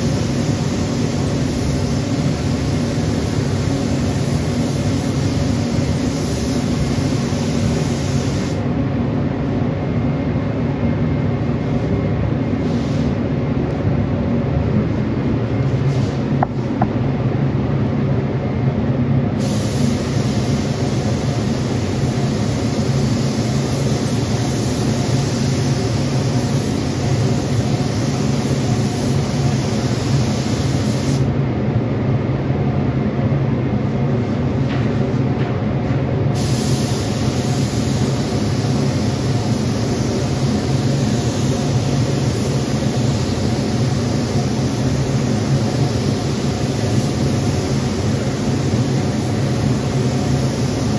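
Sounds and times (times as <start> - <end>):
spray gun hissing: 0.0 - 8.7, 19.4 - 31.3, 36.3 - 50.9.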